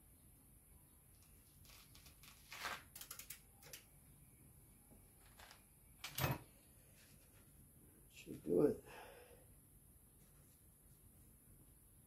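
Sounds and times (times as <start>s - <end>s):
small parts clicking and rustling: 1.1s - 3.9s.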